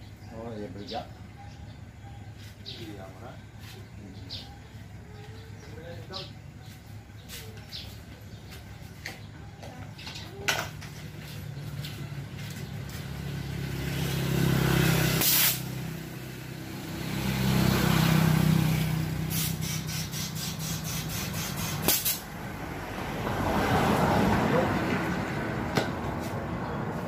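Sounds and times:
vehicles passing on road: 0.0s - 27.0s
short loud hiss: 15.2s - 15.6s.

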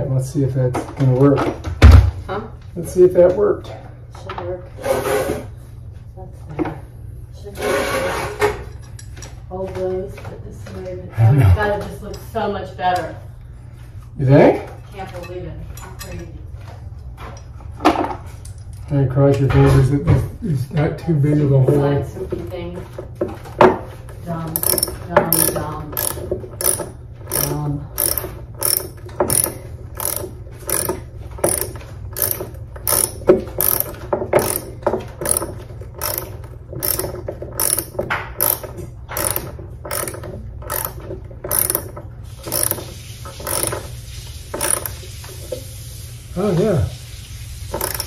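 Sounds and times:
ratchet screwdriver clicking: 24.6s - 43.8s, 44.5s - 45.0s, 47.7s - 48.0s.

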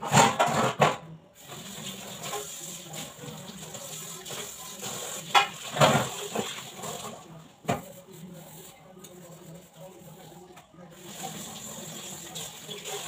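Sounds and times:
tap water running into sink: 1.4s - 7.8s, 11.0s - 13.0s.

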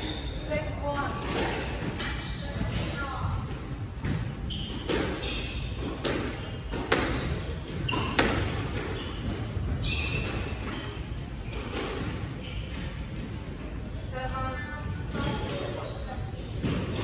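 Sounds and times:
shoes squeaking on wooden floor: 2.0s - 3.2s, 4.3s - 13.2s, 15.1s - 17.0s
squash ball smacks: 5.8s - 9.3s.

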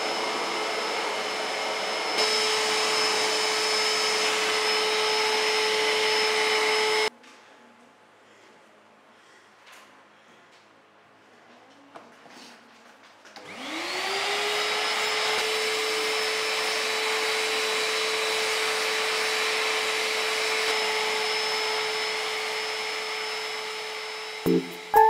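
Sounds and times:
vacuum cleaner motor whine: 0.0s - 7.1s, 13.4s - 24.9s.

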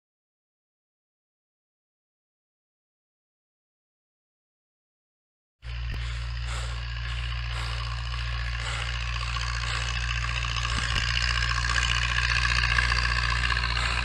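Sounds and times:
tractor diesel engine running: 5.6s - 14.0s.

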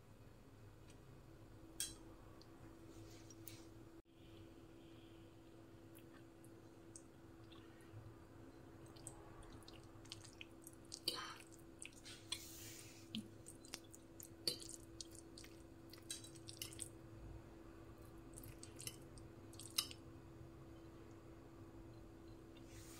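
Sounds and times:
faint steady hum: 0.0s - 22.9s
wet squishing of noodles: 5.4s - 17.1s, 18.0s - 20.1s.

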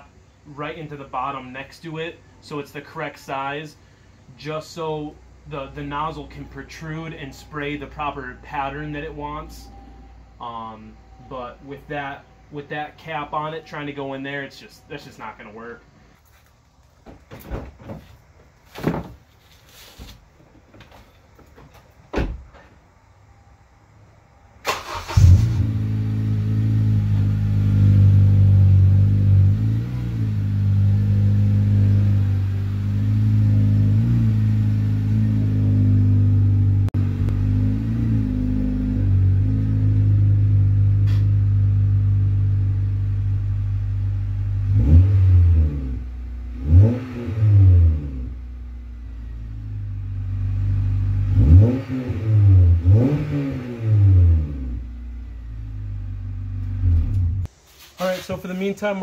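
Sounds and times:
car engine idling: 0.0s - 16.7s, 48.3s - 52.0s, 53.9s - 57.5s
engine revving in throttle blips: 24.6s - 57.5s.

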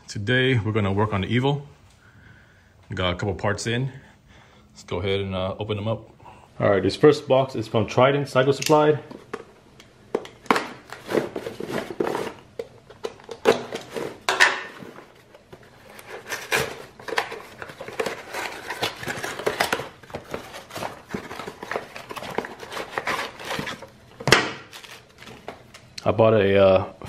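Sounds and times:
cardboard tearing: 15.0s - 25.5s.

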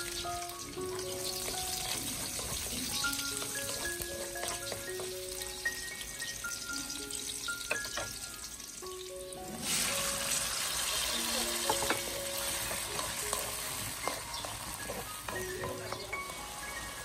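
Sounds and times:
food sizzling in oil: 0.0s - 17.0s.

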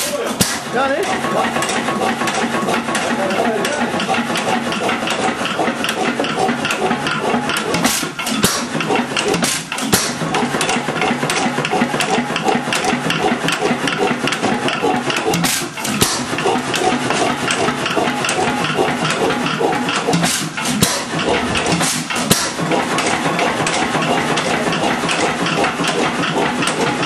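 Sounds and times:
old gasoline engine clattering: 0.0s - 27.0s.

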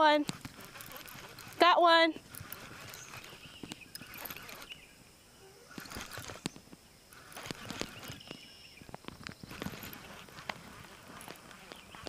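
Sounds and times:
fishing reel clicking: 0.2s - 4.7s, 5.7s - 8.2s.

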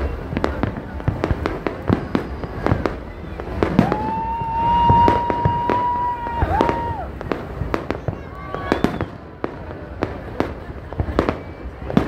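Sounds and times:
fireworks bangs and crackles: 0.0s - 12.0s
high steady whistle: 8.5s - 9.3s.

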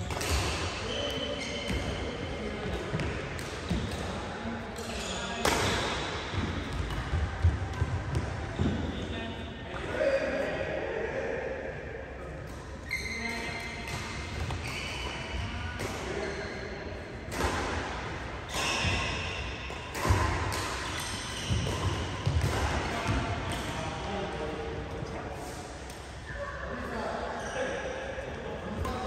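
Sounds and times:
badminton rackets hitting shuttlecock: 0.0s - 2.0s, 4.7s - 8.3s, 17.3s - 23.7s
voices in echoing hall: 0.0s - 29.0s
shoes squeaking on court: 0.8s - 2.1s, 12.8s - 15.4s.

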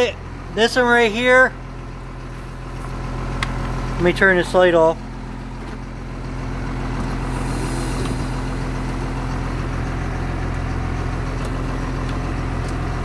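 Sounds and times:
bus engine idling: 0.0s - 13.0s.

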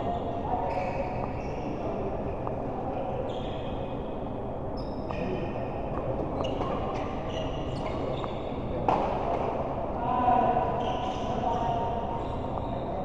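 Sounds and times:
sports shoes squeaking on court: 0.0s - 1.6s, 6.3s - 8.6s, 10.8s - 13.0s.

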